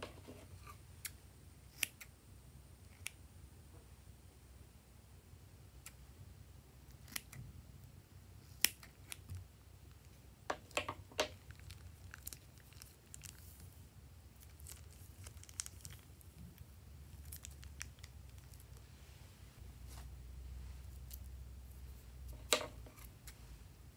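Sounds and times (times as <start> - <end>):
plastic bag crinkling: 14.4 - 16.4.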